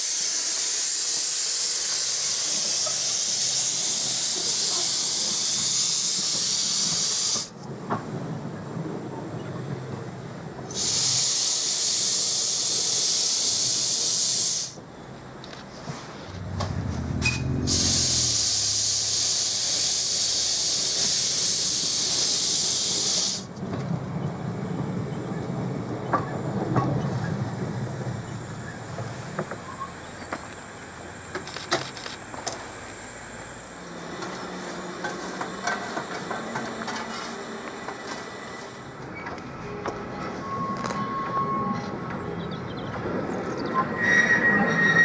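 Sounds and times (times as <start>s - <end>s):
steam hissing from locomotive: 0.0s - 7.7s, 10.6s - 14.9s, 17.1s - 23.6s, 24.4s - 39.7s
low rumble of engine moving: 15.7s - 19.3s
locomotive clanks and clicks: 23.5s - 27.5s, 31.3s - 32.7s, 34.1s - 45.0s.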